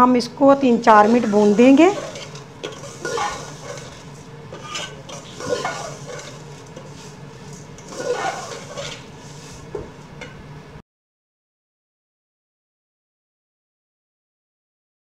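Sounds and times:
spoon scraping a metal pot: 0:00.9 - 0:10.4.

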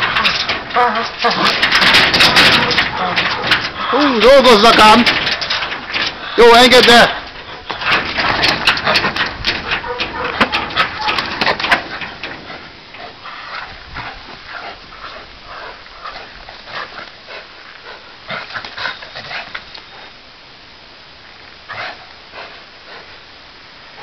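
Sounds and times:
dogs whining: 0:00.0 - 0:04.2, 0:08.8 - 0:12.1.

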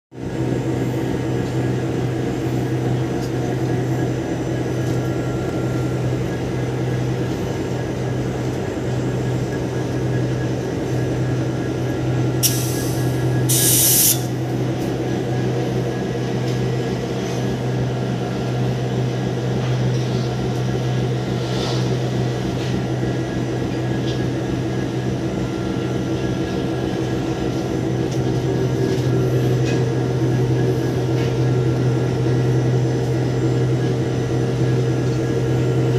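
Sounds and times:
diesel locomotive engine drone: 0:00.1 - 0:35.9
short bursts of hissing: 0:12.4 - 0:14.3.

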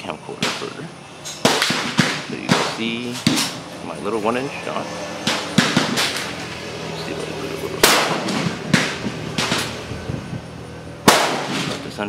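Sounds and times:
gunshots with echo: 0:00.3 - 0:03.7, 0:04.8 - 0:06.6, 0:07.4 - 0:09.9, 0:11.0 - 0:12.0.

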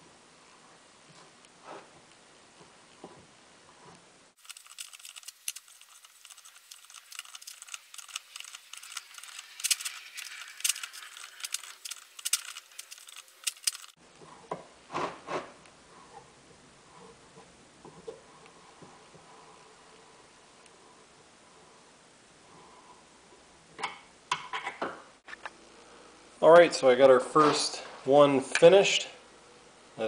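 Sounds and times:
deburring tool scraping metal: 0:04.4 - 0:14.0.

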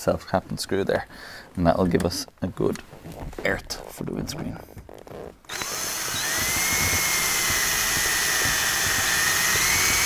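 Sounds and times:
power drill drilling steel: 0:05.5 - 0:10.0.

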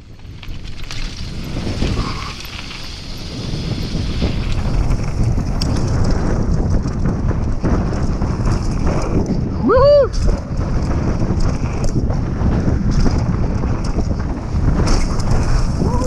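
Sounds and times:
bike tyre noise on dirt: 0:00.0 - 0:16.0
wind buffeting microphone: 0:00.0 - 0:16.0
person shouting: 0:09.6 - 0:10.2.

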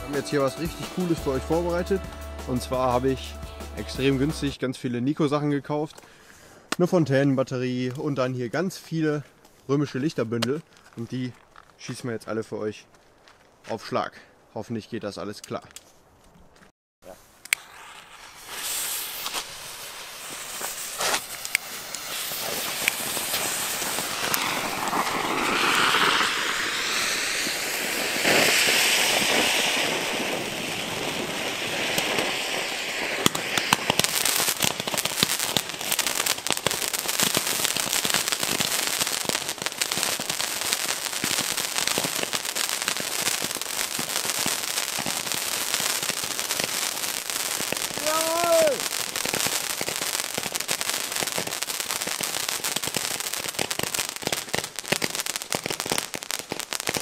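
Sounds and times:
fireworks hissing: 0:00.0 - 0:04.6, 0:17.0 - 0:57.0
fireworks popping and crackling: 0:00.0 - 0:04.6, 0:07.8 - 0:12.0, 0:17.0 - 0:57.0.

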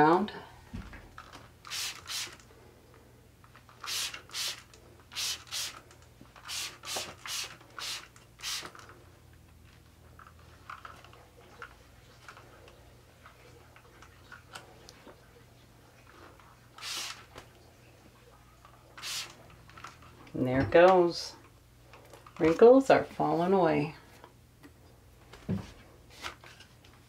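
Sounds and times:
spray bottle hissing: 0:01.7 - 0:02.4, 0:03.8 - 0:05.8, 0:06.4 - 0:08.8, 0:16.8 - 0:17.3, 0:19.0 - 0:19.4.

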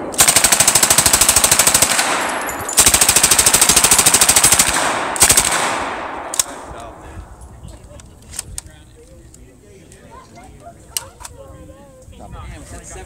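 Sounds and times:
rifle firing full-auto bursts: 0:00.0 - 0:06.7.

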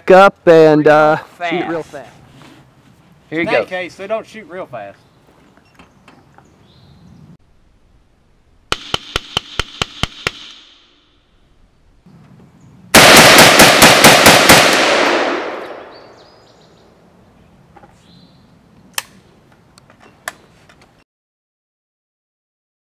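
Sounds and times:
rifle gunshots: 0:08.7 - 0:10.8, 0:12.9 - 0:16.0
sharp clicks: 0:18.9 - 0:20.4.

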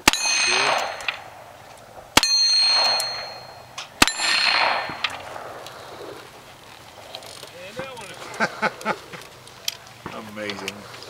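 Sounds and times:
steel targets ringing: 0:00.0 - 0:01.4, 0:02.2 - 0:05.4
gunshots echoing: 0:00.0 - 0:06.3.

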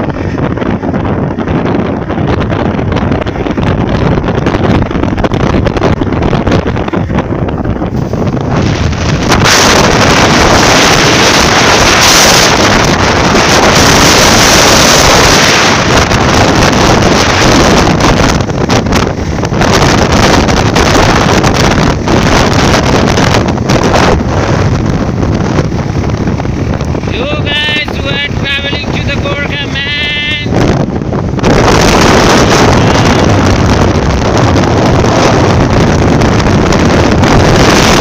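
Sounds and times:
wind buffeting microphone: 0:00.0 - 0:38.0.

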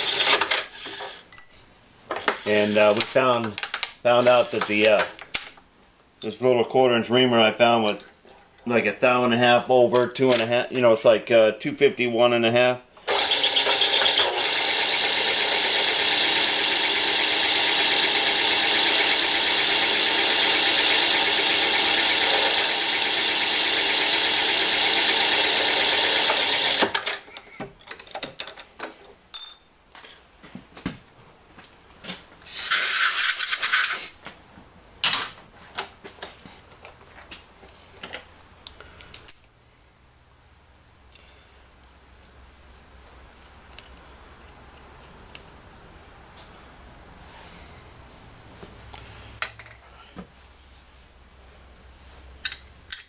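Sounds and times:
machine spindle motor whine: 0:13.1 - 0:26.8
short hiss: 0:32.4 - 0:34.2.

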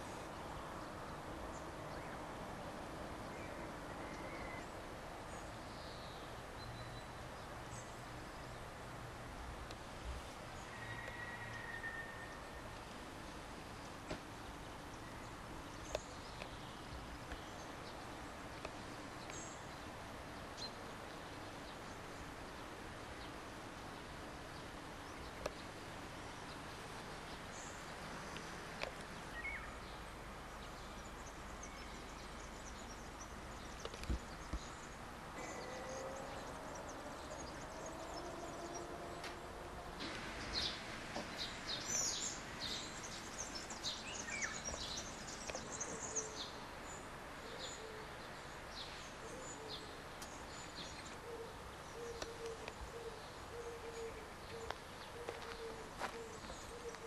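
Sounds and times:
steady background hiss: 0:00.0 - 0:57.0
birds chirping: 0:13.8 - 0:57.0.

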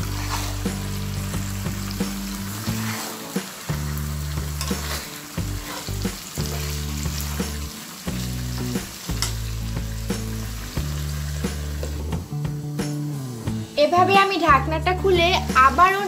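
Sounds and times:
spatula scraping pan: 0:00.0 - 0:07.6
meat sizzling in pan: 0:00.0 - 0:13.8.

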